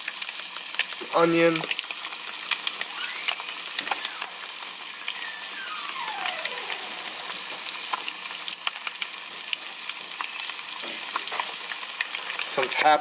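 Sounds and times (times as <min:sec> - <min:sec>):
fish sizzling in a pan: 0:00.0 - 0:13.0
faint downward gliding tone: 0:02.9 - 0:08.3.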